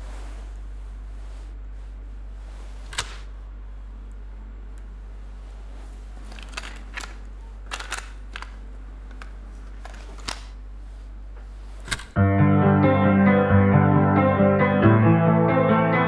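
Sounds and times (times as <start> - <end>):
steady low hum: 0.0 - 16.0
plastic cassette clicks: 6.4 - 10.5.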